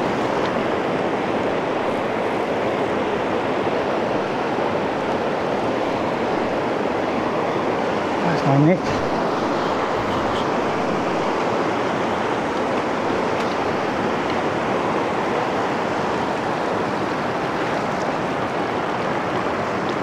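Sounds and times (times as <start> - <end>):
river rapids rushing over stones: 0.0 - 20.0.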